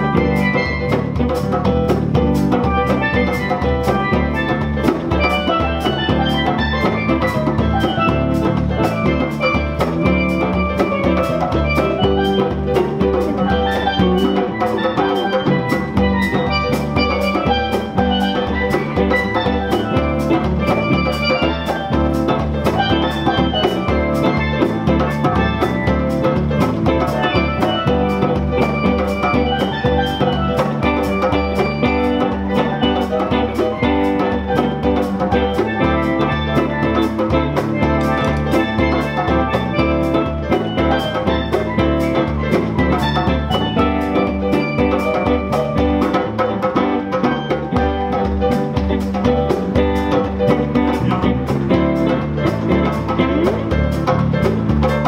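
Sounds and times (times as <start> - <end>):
guitars: 0.0 - 55.0
hand drum steady beat: 0.0 - 55.0
keyboard: 0.0 - 55.0.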